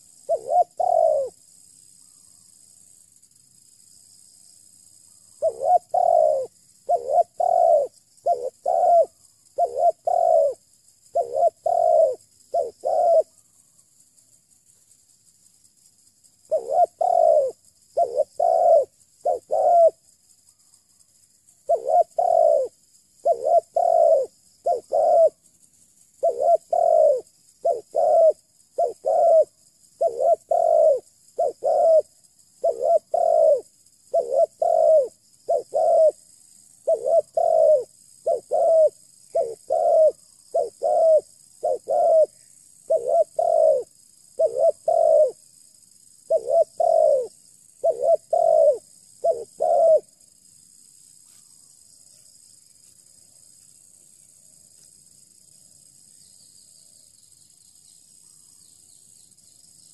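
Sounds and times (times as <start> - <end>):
dove cooing: 0.0 - 1.4, 5.4 - 13.3, 16.5 - 20.0, 21.7 - 25.4, 26.2 - 36.2, 36.8 - 45.4, 46.3 - 50.2.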